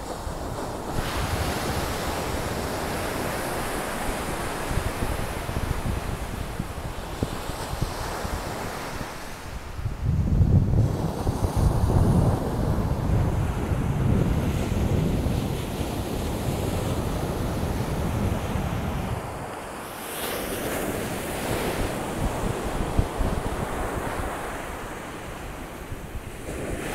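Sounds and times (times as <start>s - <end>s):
wind buffeting microphone: 0.0s - 26.9s.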